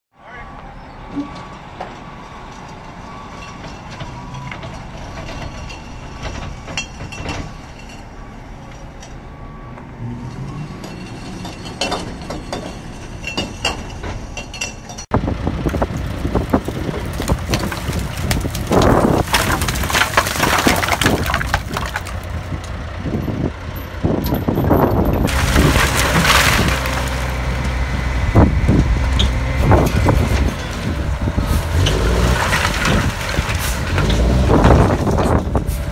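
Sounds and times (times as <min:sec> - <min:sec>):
wood cracking: 0:15.5 - 0:22.8, 0:25.1 - 0:35.6
pallet wood clattering out: 0:17.0 - 0:22.3, 0:25.3 - 0:27.4.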